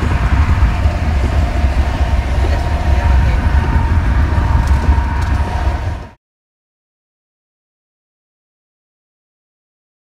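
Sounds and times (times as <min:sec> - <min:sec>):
road and wind noise in car: 0:00.0 - 0:06.2.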